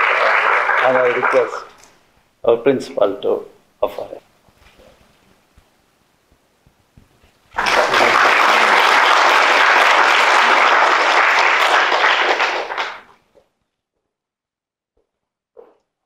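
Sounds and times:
audience applauding: 0.0s - 1.8s, 7.5s - 13.2s.

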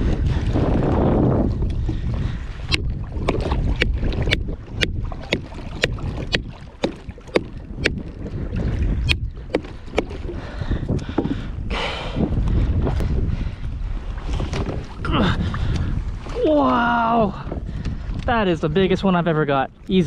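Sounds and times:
wind rumble on microphone: 0.0s - 20.0s
wooden bat striking fish: 2.7s - 8.2s, 9.0s - 10.4s.

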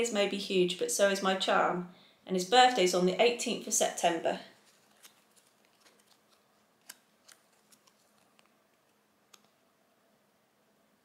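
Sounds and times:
fingers handling paper tag: 4.6s - 9.6s.

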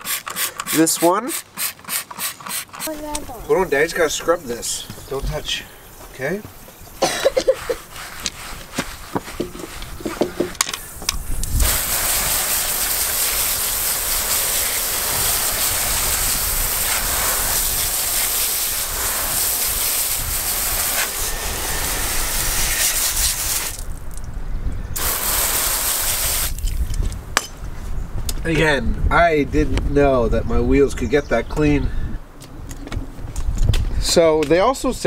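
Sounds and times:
hose spraying water: 0.0s - 6.4s, 7.0s - 24.2s, 25.0s - 26.8s
stiff brush scrubbing: 7.3s - 10.4s, 11.6s - 24.0s.

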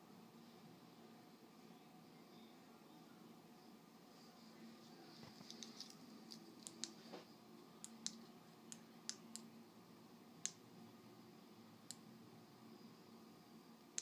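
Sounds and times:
low steady hum: 0.0s - 14.0s
faint sharp clicks: 5.5s - 7.0s.

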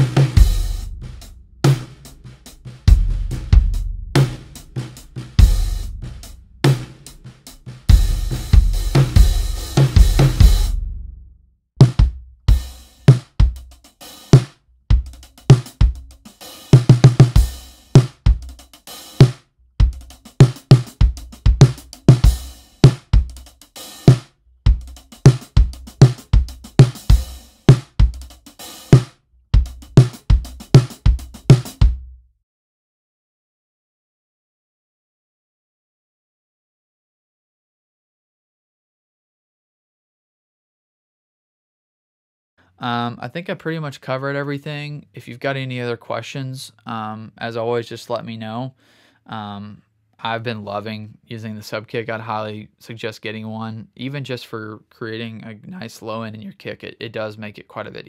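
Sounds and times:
drum kit playing groove: 0.0s - 11.1s, 11.8s - 32.1s
marching bass drum: 0.0s - 11.2s, 11.8s - 32.1s.

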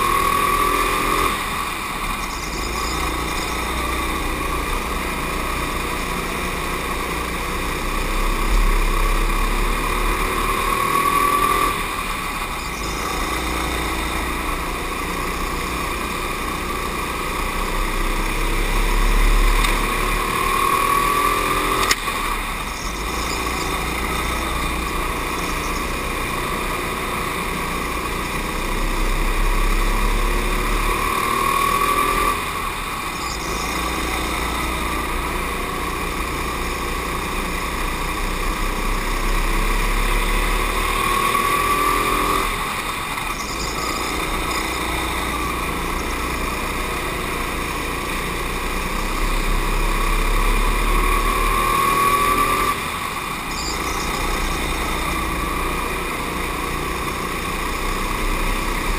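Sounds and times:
go-kart engine revving: 0.0s - 58.9s.

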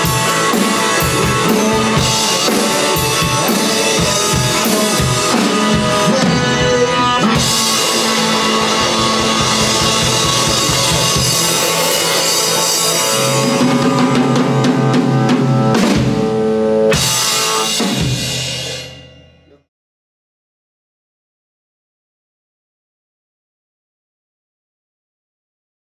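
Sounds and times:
electric guitar through tube amp: 0.0s - 19.6s
drum kit: 0.0s - 19.7s.

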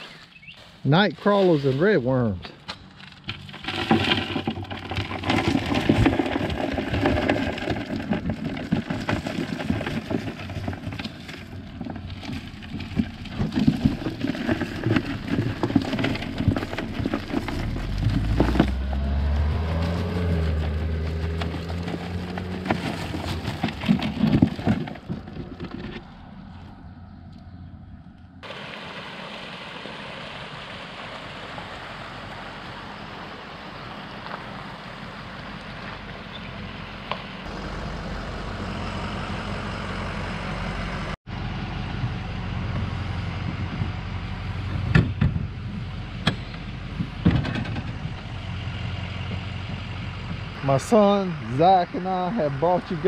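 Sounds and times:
dry leaves crackling and rustling: 0.0s - 2.0s, 8.9s - 25.0s
low engine hum: 10.3s - 53.0s.

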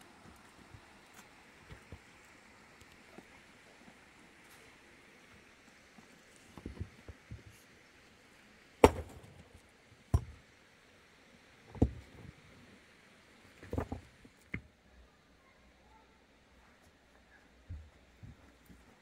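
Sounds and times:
stones knocking: 8.8s - 9.4s, 11.7s - 12.1s, 13.6s - 14.6s
digging tool striking rocky ground: 8.8s - 10.4s.

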